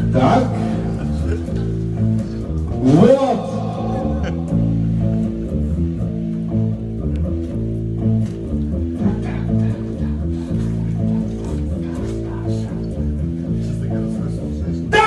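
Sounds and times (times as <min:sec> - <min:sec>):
noise rock band playing riff: 0:00.0 - 0:09.2.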